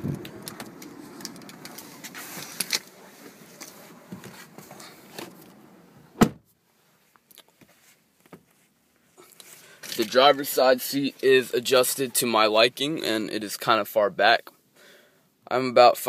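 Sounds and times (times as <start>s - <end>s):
shuffling and handling noises: 0.3s - 5.6s, 6.7s - 11.4s
car door shutting: 4.1s - 6.4s.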